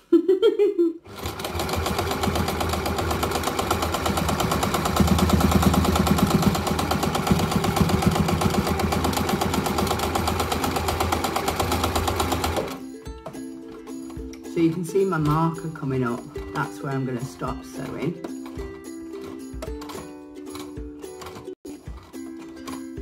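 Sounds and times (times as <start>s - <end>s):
sewing machine motor hum: 1.0s - 12.8s
sewing machine needle clatter: 1.1s - 12.8s.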